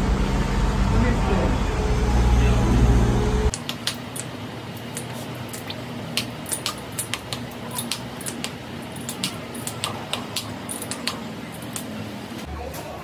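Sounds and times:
low machine hum: 0.0s - 13.0s
metal tools clicking and tapping: 6.5s - 11.9s.

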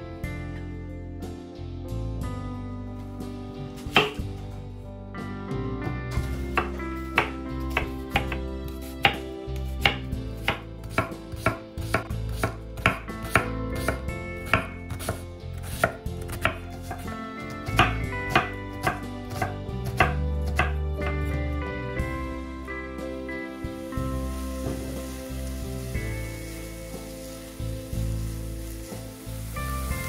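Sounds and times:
knife chopping on cutting board: 3.8s - 4.4s, 6.5s - 21.3s.

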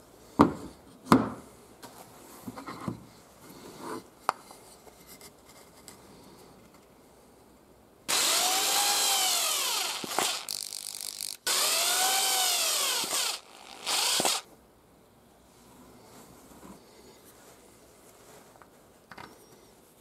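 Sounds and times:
drill motor whining: 8.1s - 14.5s.

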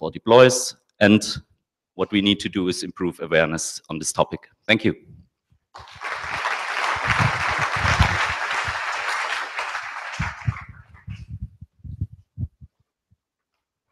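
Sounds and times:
audience applauding: 5.8s - 11.1s.

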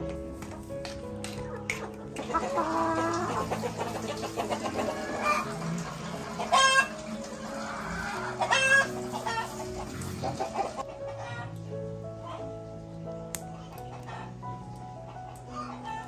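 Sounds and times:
chickens clucking: 0.3s - 16.0s
loud chicken calls: 2.2s - 11.5s.

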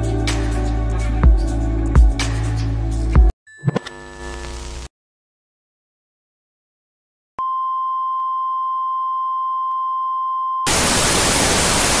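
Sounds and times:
television static hiss: 10.7s - 12.0s.

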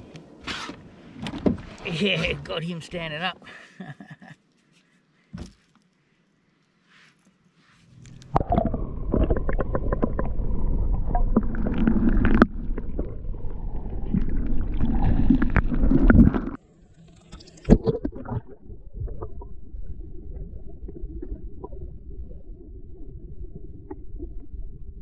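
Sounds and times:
underwater gurgling and rushing: 7.8s - 25.0s.

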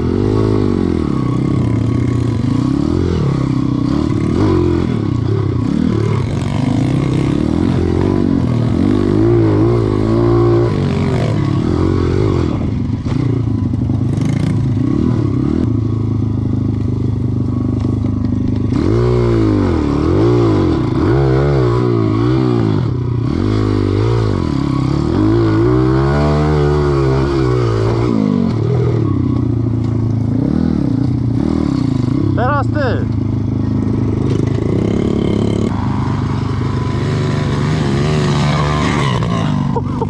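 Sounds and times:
motorcycle engine revving: 0.0s - 40.0s.

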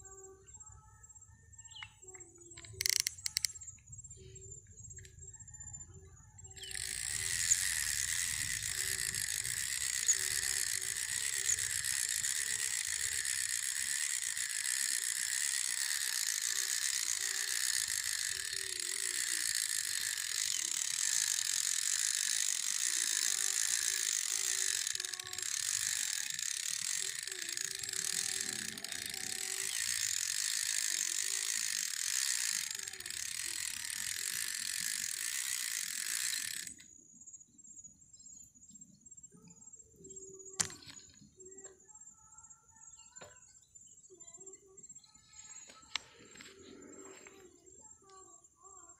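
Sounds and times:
cicada buzzing: 2.3s - 3.7s, 6.5s - 36.8s.

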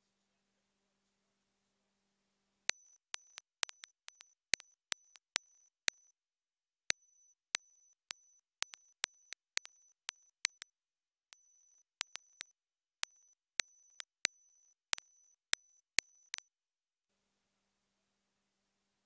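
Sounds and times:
sharp clicks: 2.7s - 6.0s, 8.1s - 10.7s, 11.9s - 14.3s, 14.9s - 16.4s.

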